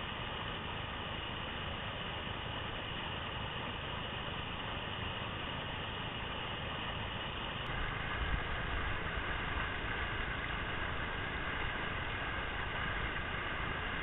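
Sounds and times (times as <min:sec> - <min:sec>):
whitewater rushing: 0:07.7 - 0:14.0.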